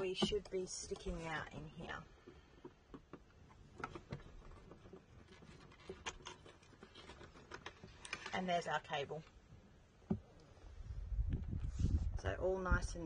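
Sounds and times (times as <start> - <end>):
light clicks and scrapes on plastic: 0.0 - 9.4.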